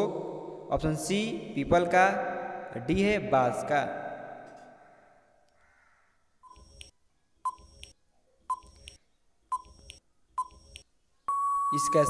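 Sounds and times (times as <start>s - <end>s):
short electronic beeps: 6.4s - 6.9s, 7.5s - 7.9s, 8.5s - 12.0s.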